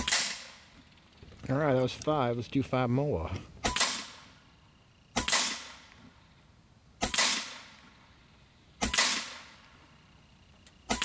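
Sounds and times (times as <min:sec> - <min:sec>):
air rifle shots: 0:00.0 - 0:00.8, 0:03.6 - 0:04.4, 0:05.1 - 0:06.0, 0:07.0 - 0:08.1, 0:08.7 - 0:09.8.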